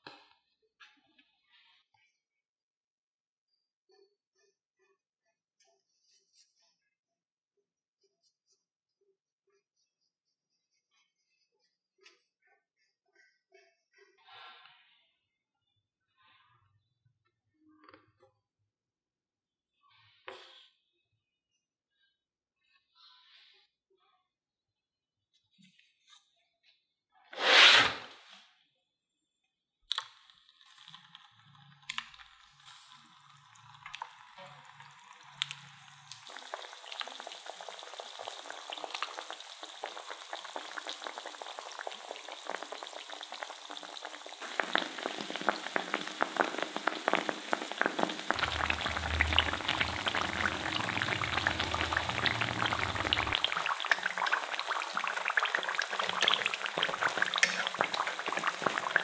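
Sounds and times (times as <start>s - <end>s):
food deep-frying in oil: 29.9s - 59.0s.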